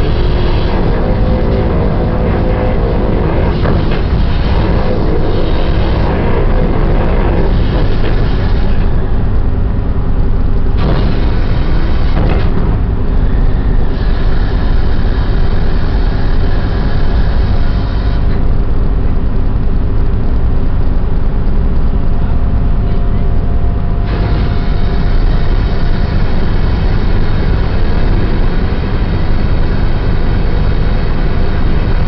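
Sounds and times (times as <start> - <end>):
deck machinery rumble: 0.0 - 32.0
hiss: 10.8 - 12.6, 13.4 - 18.3, 24.1 - 32.0.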